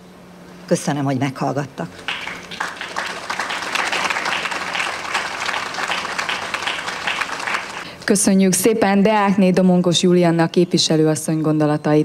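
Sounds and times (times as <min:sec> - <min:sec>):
crowd applauding: 0:02.0 - 0:07.8.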